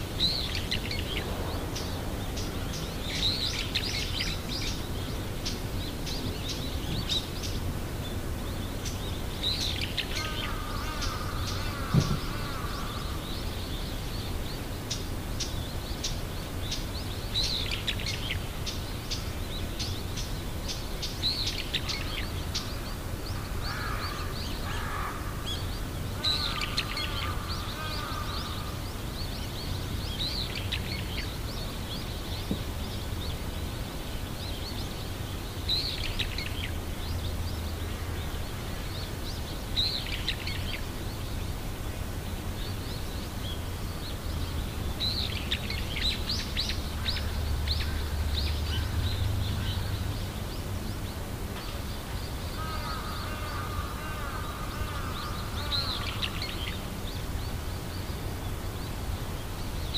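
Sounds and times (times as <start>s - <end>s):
small birds chirping: 0.0s - 59.9s
steady low rumble: 0.3s - 9.0s.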